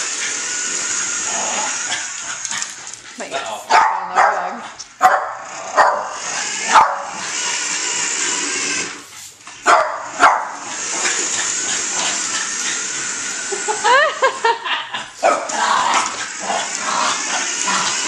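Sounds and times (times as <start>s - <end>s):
toy truck electric motor whir: 0.0s - 3.1s, 4.8s - 14.6s, 15.4s - 18.0s
small dog barking: 3.7s - 7.2s, 9.6s - 10.6s.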